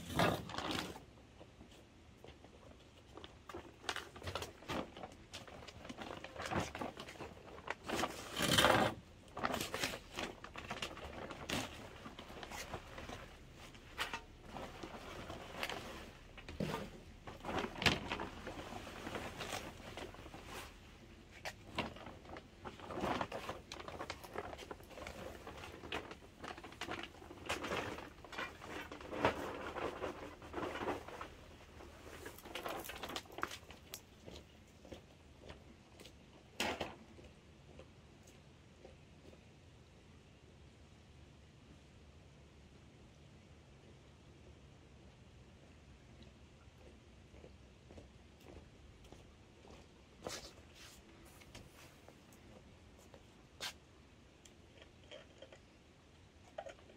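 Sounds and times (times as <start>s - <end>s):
plant cuttings and bag rustling: 0.0s - 35.6s.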